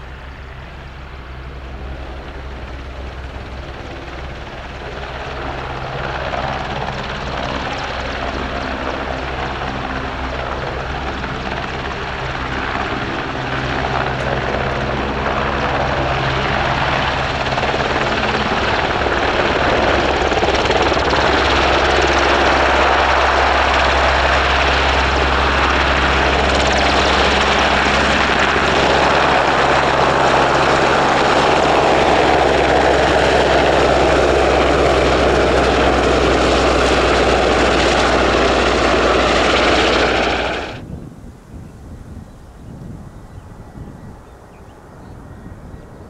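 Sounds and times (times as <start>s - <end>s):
helicopter rotor and turbine noise: 0.0s - 46.0s.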